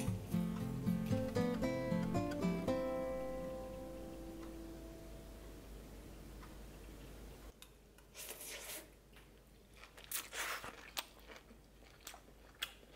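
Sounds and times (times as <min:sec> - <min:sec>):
chewing and biting food: 0:09.1 - 0:12.9.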